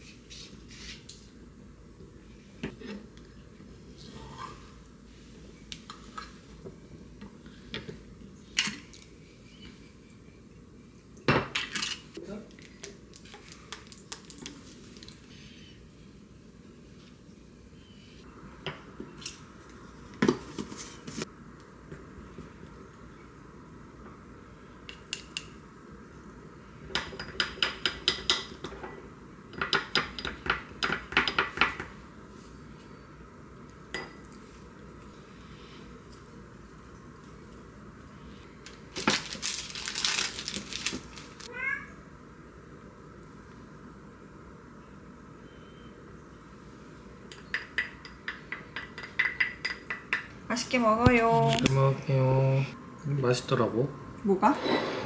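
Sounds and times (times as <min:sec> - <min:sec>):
dish clinking on stone countertop: 0:33.9 - 0:34.3, 0:47.4 - 0:50.3.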